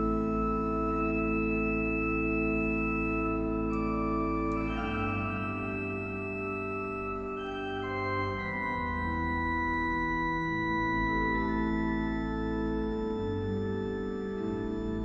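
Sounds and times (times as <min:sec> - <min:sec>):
pipe organ chords: 0:00.0 - 0:15.0.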